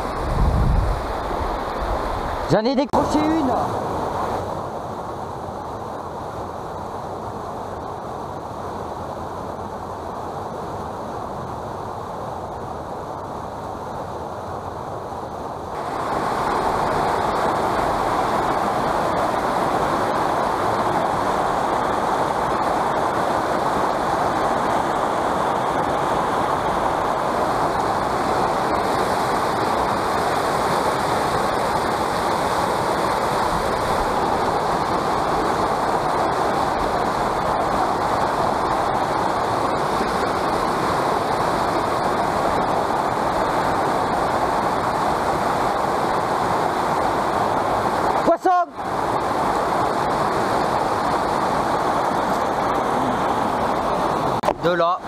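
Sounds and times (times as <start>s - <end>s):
water rushing over rocks: 0.0s - 13.9s, 14.6s - 55.0s.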